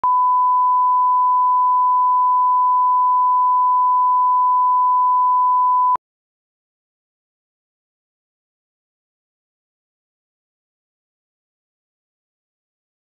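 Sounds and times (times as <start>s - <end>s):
steady test tone beep: 0.0s - 6.0s.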